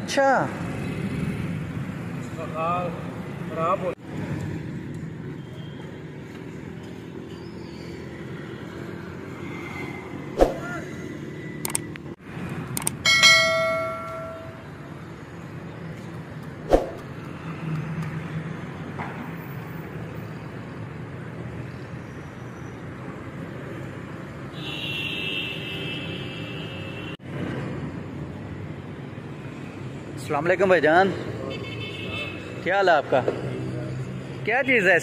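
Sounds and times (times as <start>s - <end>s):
street traffic: 0.0s - 35.0s
quick clicks: 11.6s - 12.0s, 12.7s - 13.0s
bell ringing: 13.0s - 14.7s.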